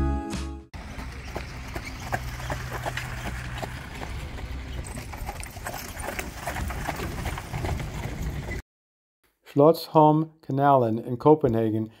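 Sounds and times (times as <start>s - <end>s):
horse hooves clip-clopping on sand: 0.8s - 8.6s.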